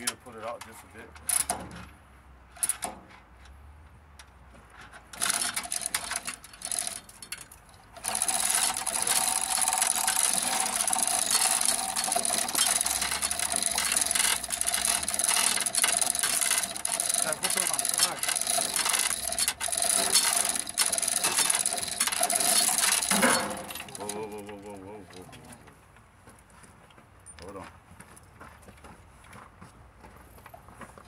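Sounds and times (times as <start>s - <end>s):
hoist chain rattling: 5.1s - 25.4s
hoist clicks: 5.2s - 25.4s.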